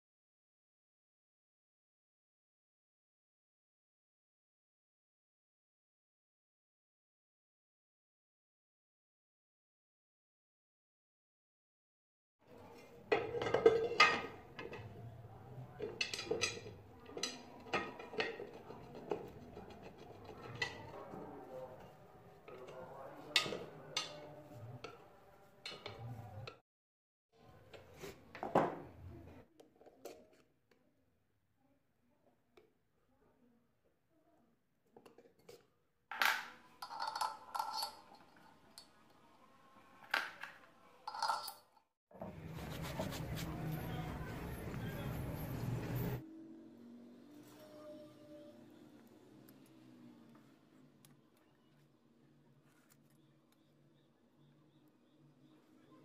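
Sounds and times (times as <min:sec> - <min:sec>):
steel parts clinking and knocking: 0:36.3 - 0:38.4, 0:41.1 - 0:41.7.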